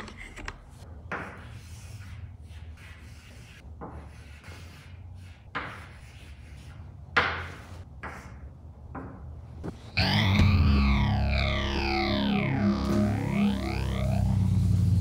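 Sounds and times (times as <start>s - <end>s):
chalk scratching on a chalkboard: 1.1s - 8.5s.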